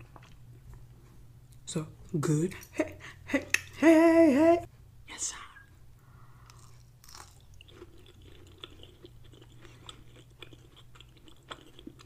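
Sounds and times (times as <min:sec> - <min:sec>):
close chewing with wet mouth clicks: 0:06.5 - 0:12.0.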